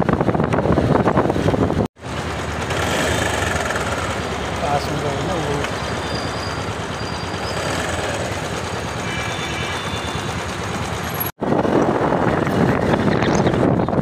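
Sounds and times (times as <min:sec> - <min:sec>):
wind buffeting microphone: 0:00.0 - 0:01.9, 0:11.4 - 0:14.0
city traffic noise: 0:00.0 - 0:14.0
motorcycle engine: 0:00.0 - 0:14.0.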